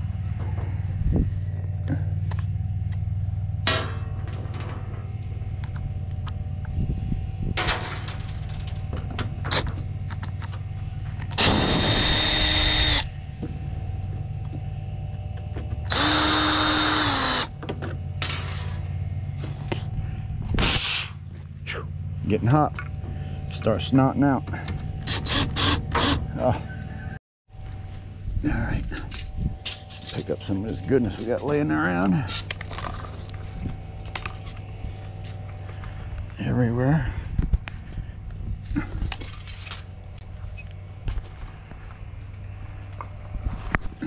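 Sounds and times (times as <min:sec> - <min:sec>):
steady low hum: 0:00.0 - 0:44.0
handling knocks and clatter: 0:02.3 - 0:05.9, 0:07.5 - 0:11.4, 0:28.9 - 0:35.4
cordless drill motor whine: 0:11.1 - 0:17.6.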